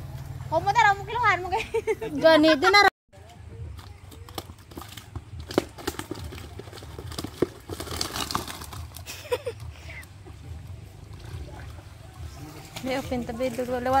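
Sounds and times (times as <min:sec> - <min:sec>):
fish flapping in a net: 0:04.1 - 0:09.6.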